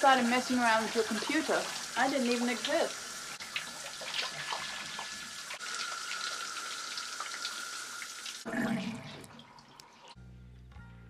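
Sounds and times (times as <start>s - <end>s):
shower spray on tiled floor: 0.0s - 8.4s.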